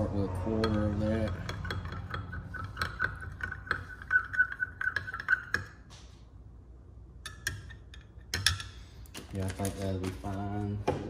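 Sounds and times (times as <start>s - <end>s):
metal stick clinking against glass: 0.0s - 5.7s.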